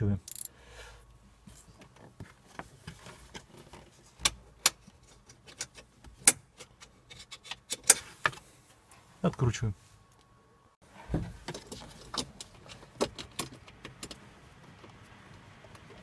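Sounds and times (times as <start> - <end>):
wrench clicking on metal: 0.2 - 0.5.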